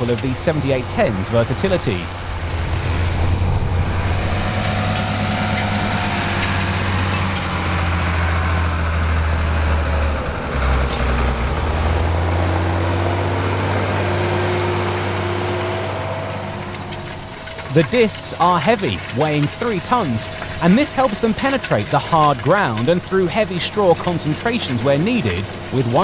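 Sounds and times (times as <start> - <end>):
diesel engine under heavy load: 0.0 - 26.0.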